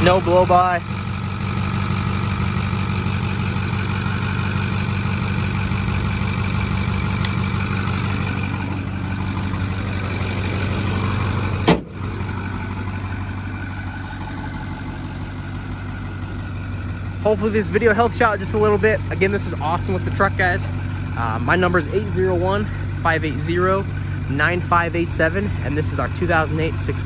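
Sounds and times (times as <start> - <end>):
diesel engine idling: 0.0 - 27.0
hood slamming shut: 11.5 - 12.1.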